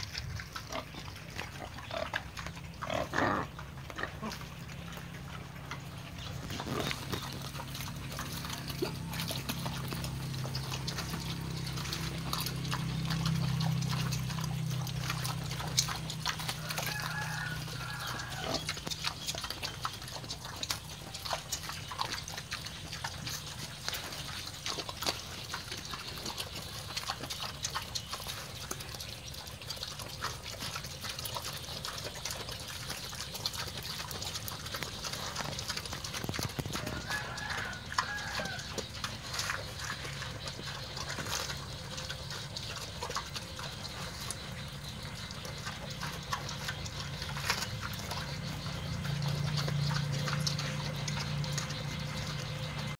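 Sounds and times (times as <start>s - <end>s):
wild boars chewing: 0.0s - 52.9s.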